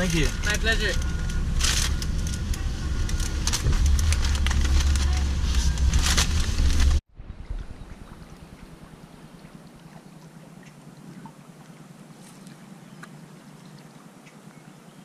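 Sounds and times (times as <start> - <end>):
low bump: 0.3 - 9.0.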